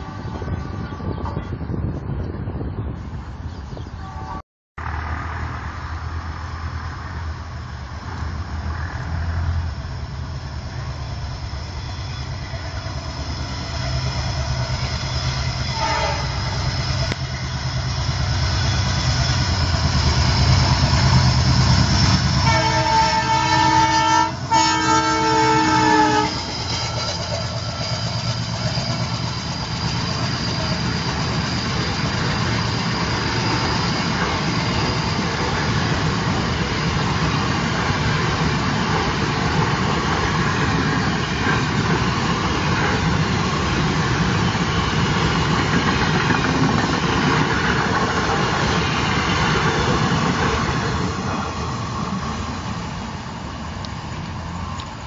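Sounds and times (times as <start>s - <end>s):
diesel locomotive rumble: 0.0s - 55.0s
train horn: 4.0s - 4.4s, 15.6s - 17.5s, 22.2s - 26.5s.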